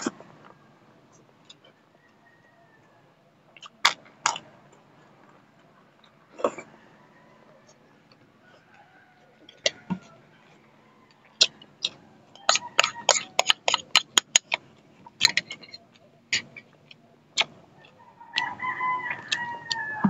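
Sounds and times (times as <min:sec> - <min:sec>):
sipping and chewing: 0:03.5 - 0:05.4, 0:08.1 - 0:20.0.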